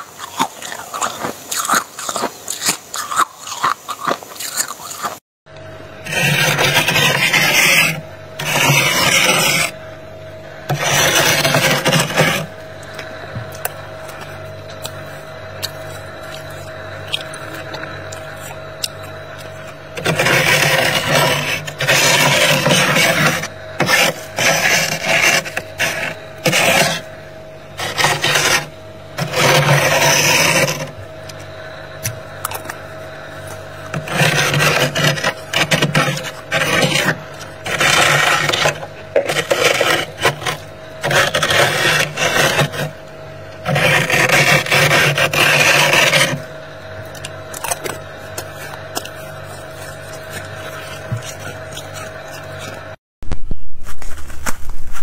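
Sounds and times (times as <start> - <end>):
faint steady hum: 0.0 - 55.0
metal tool scraping frost: 6.0 - 9.8, 10.7 - 12.6, 14.0 - 27.1, 27.8 - 31.0, 33.4 - 43.0, 43.6 - 46.5, 47.1 - 53.0.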